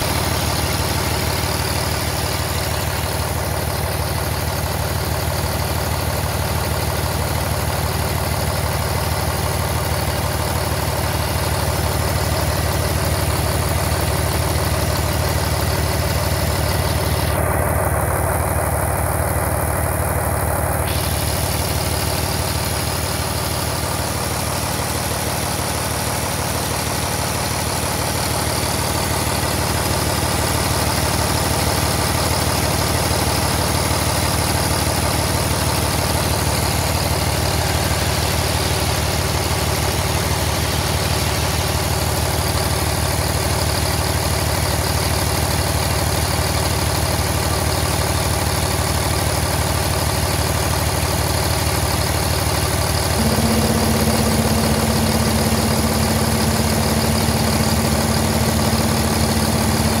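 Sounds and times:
diesel engine idling: 0.0 - 60.0
steady droning tone: 53.2 - 60.0.

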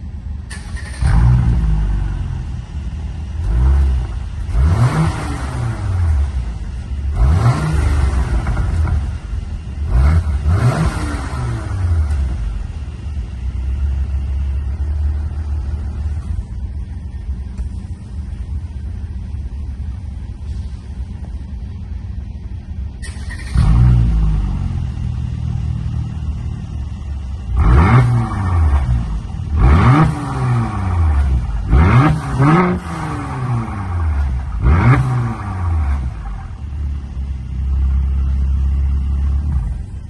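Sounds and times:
car engine idling and revving: 0.0 - 40.0.

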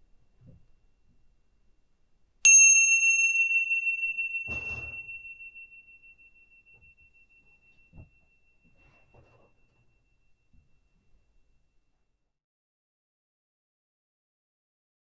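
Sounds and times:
meditation bell ringing: 2.4 - 11.8.

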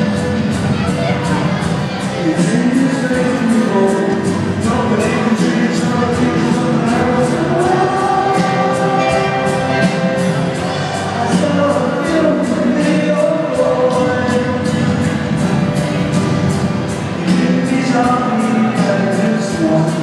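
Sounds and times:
drum and cymbal beat: 0.0 - 20.0
live band music with singing: 0.0 - 20.0.

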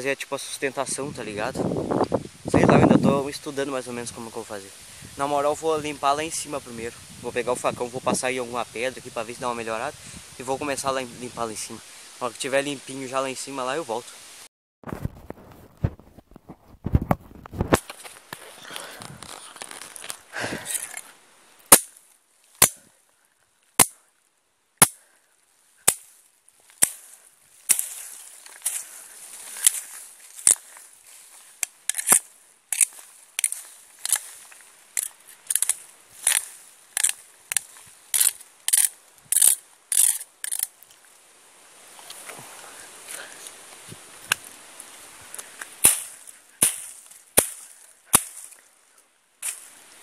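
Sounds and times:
machete chopping branches: 21.7 - 22.0, 22.6 - 22.9, 23.8 - 24.0, 24.8 - 25.1, 25.8 - 28.9, 31.6 - 34.3, 35.0 - 40.7, 45.8 - 48.6, 49.4 - 49.7.

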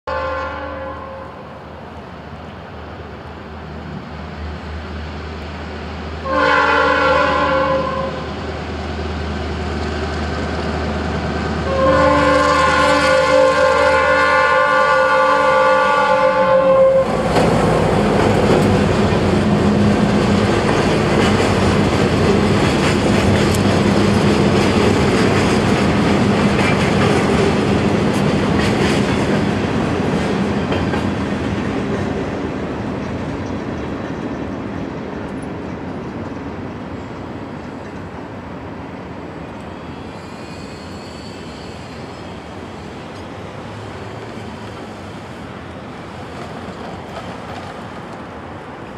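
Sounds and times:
locomotive horn: 0.0 - 1.5, 6.2 - 8.4, 11.6 - 17.4
train wheels clacking over rails: 17.0 - 38.3, 40.1 - 48.9.

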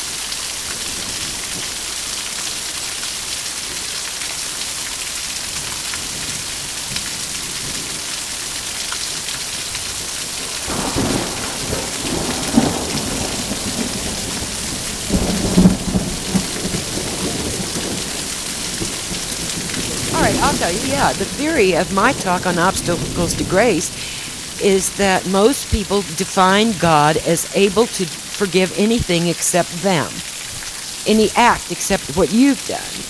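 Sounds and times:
steady rain: 0.0 - 33.0
thunder rolling: 10.4 - 33.0.

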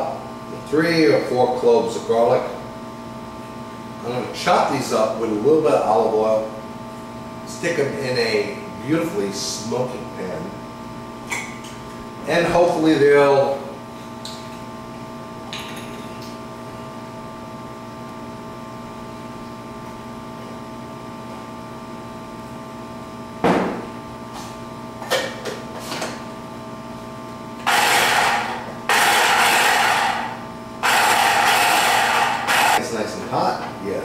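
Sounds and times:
steady background hum: 0.0 - 34.0
knock: 23.4 - 23.8
kitchen chopper running: 27.6 - 34.0.

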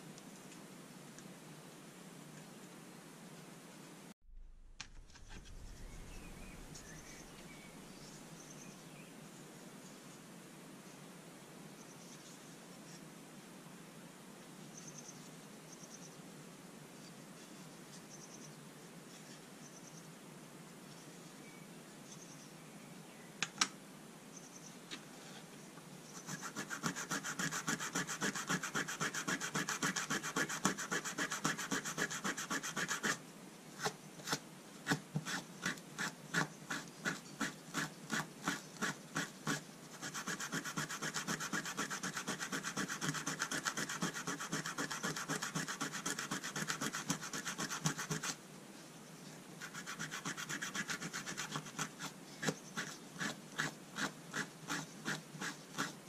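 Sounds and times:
rubbing on brass tip: 26.2 - 33.2, 35.2 - 48.4, 49.6 - 56.0.

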